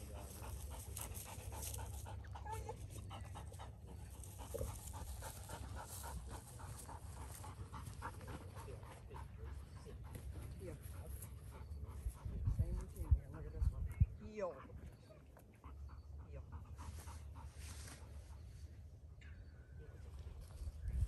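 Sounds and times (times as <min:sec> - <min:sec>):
dog panting: 0:00.0 - 0:19.0.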